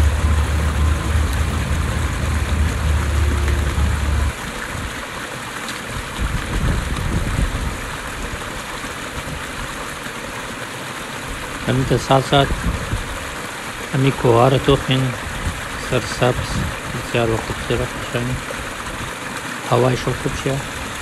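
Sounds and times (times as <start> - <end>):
bus engine droning: 0.0 - 4.4
steady rushing noise: 0.0 - 4.9
wind buffeting microphone: 6.0 - 8.3, 12.4 - 13.3, 15.2 - 18.2.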